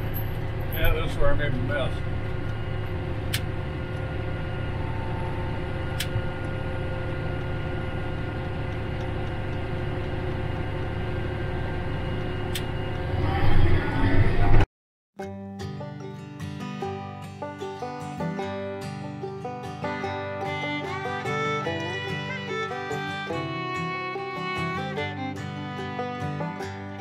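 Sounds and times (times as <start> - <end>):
tractor diesel engine running: 0.0 - 13.6, 19.3 - 27.0.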